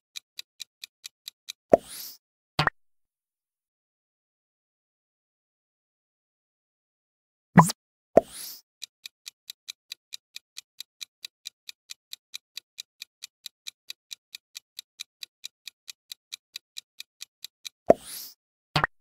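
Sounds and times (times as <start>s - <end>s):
clock ticking quickly: 0.1s - 2.2s, 8.8s - 18.3s.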